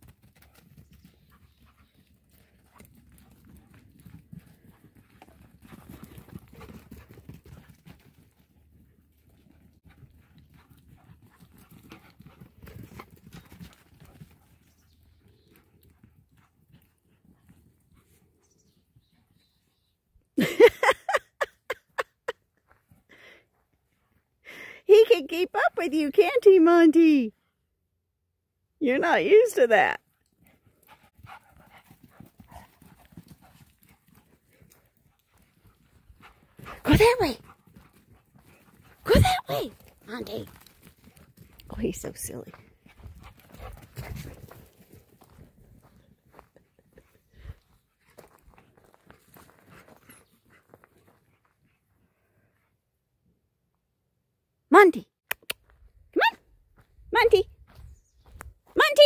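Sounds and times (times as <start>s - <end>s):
dog panting: 30.4s - 39.1s
footsteps on dry ground: 56.7s - 59.0s.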